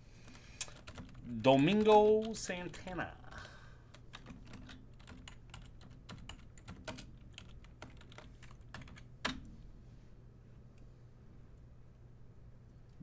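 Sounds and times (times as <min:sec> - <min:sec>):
typing on computer keyboard: 0:00.6 - 0:02.4, 0:03.9 - 0:09.4.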